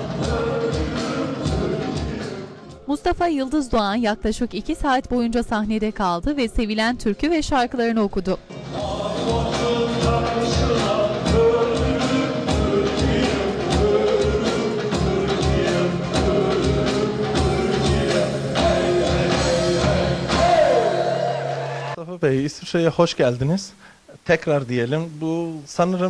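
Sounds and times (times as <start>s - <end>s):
steady drum beat: 0.0s - 2.5s, 8.8s - 21.2s
band accompaniment: 0.0s - 2.6s, 8.6s - 22.0s
man singing: 0.0s - 2.7s, 8.6s - 21.6s.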